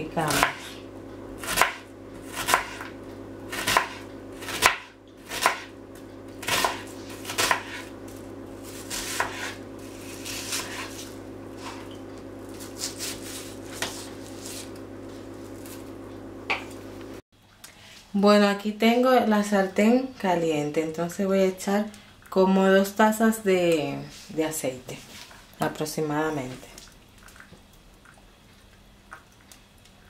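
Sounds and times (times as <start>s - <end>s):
knife slicing onion on board: 0.2s - 0.8s, 1.4s - 8.0s, 8.6s - 11.9s, 12.5s - 15.9s.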